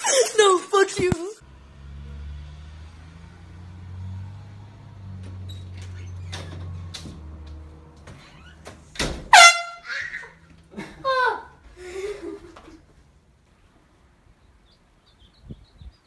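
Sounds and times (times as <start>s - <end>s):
air horn blast: 9.3s - 10.0s.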